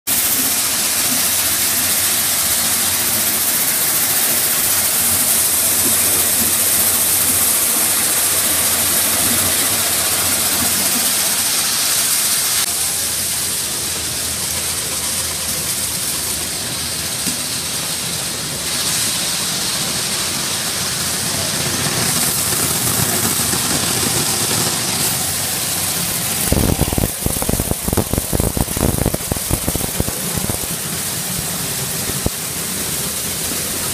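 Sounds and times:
sorting machinery hiss and hum: 0.1 - 33.9.

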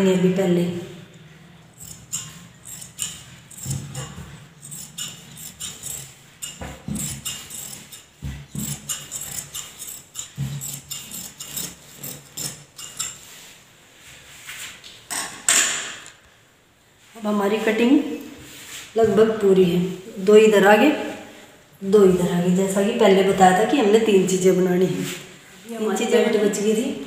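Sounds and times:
scissors cutting cloth: 1.7 - 13.3.

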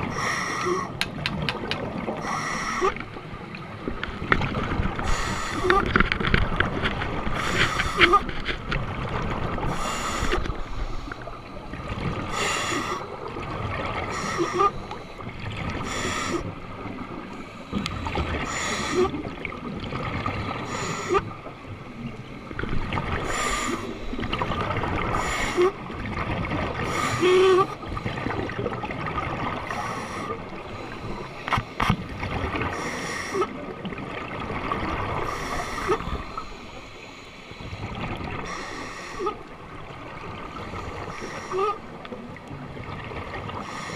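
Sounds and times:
watery wash: 0.0 - 43.9
scuba regulator breathing bubbles: 23.2 - 24.5, 26.8 - 28.5, 35.2 - 39.4.

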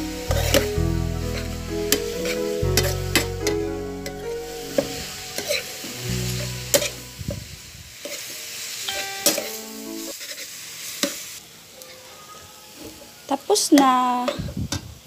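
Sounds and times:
background music: 0.0 - 7.7, 8.8 - 10.1
food sizzling: 0.0 - 11.8.

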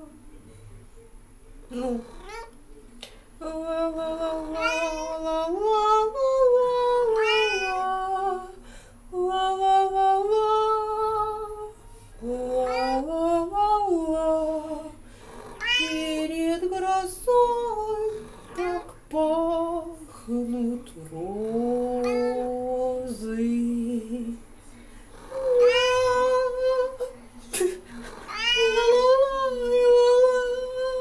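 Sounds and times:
woman singing: 3.4 - 15.0, 15.7 - 24.4, 25.3 - 27.1, 28.4 - 31.0
cat meowing and yowling: 4.6 - 5.2, 7.2 - 7.9, 15.6 - 16.0, 25.6 - 26.2, 28.3 - 29.1.

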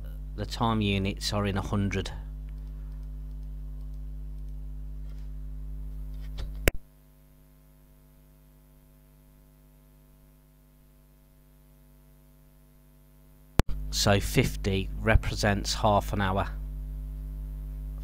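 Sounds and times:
electrical mains hum: 0.0 - 18.0
faint clicks: 2.5 - 4.6.

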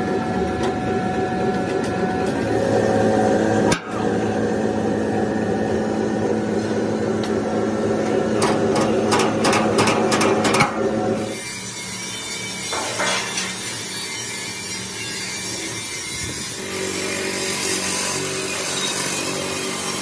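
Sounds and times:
metal press motor hum: 0.0 - 11.4, 12.0 - 14.5
sharp metal knocks and clicks: 8.4 - 10.8.

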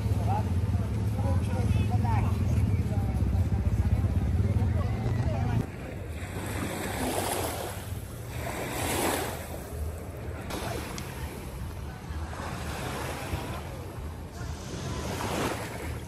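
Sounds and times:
sea water washing and splashing: 5.7 - 16.0.

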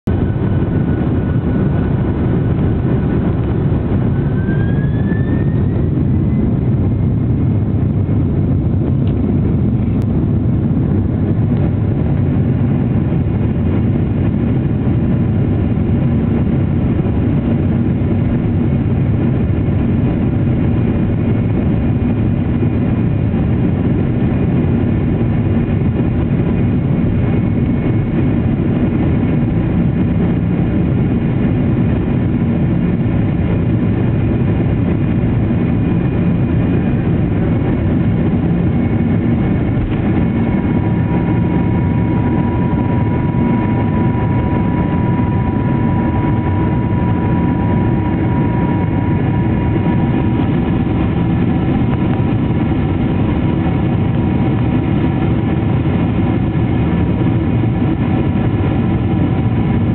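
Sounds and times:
jet engines rumbling: 0.0 - 59.9
faint rising whine: 0.1 - 12.0, 34.4 - 59.9.

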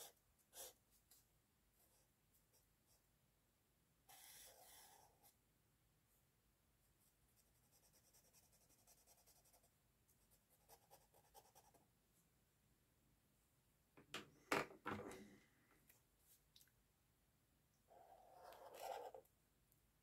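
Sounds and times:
marker scratching on paper: 0.0 - 0.8, 4.1 - 5.3, 18.3 - 19.2.

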